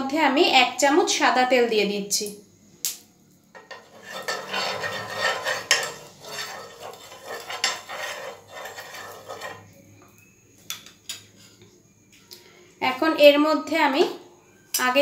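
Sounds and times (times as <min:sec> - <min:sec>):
metal spoon scraping frying pan: 0:03.6 - 0:09.8.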